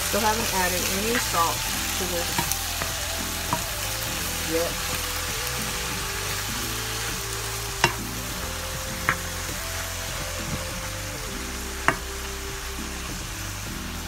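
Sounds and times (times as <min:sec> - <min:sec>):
vegetables sizzling in oil: 0:00.0 - 0:14.0
wooden spatula knocking on pan: 0:07.8 - 0:08.0.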